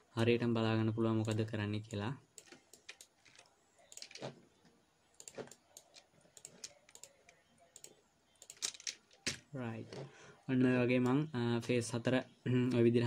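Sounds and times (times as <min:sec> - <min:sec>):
keyboard and mouse clicking: 0:01.2 - 0:04.4, 0:05.2 - 0:09.4.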